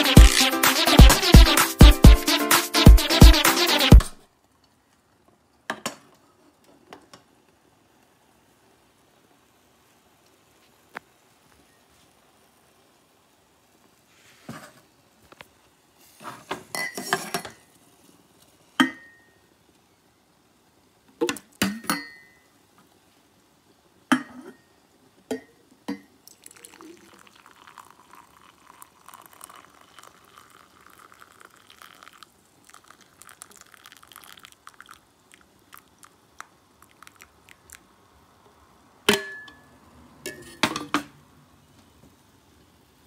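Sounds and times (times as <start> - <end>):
kettle clinking against ceramic mug: 25.3 - 33.0
hot water pouring into mug: 26.2 - 38.0.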